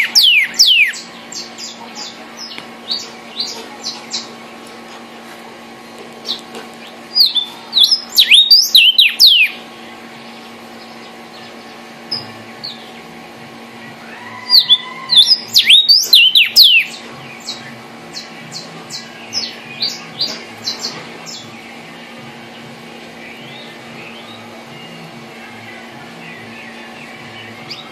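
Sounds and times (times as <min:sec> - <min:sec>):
bird singing slurred whistles: 0:00.0 - 0:01.1, 0:07.2 - 0:09.6, 0:14.4 - 0:17.6
bird chip notes: 0:06.2 - 0:27.9.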